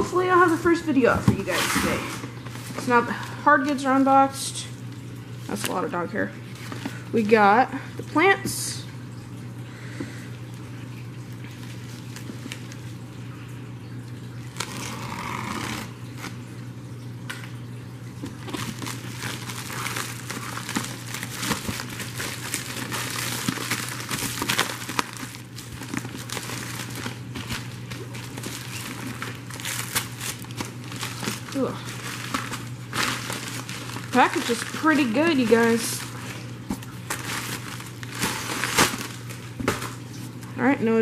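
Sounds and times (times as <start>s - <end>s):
plastic mailer crinkling: 18.1s - 40.5s.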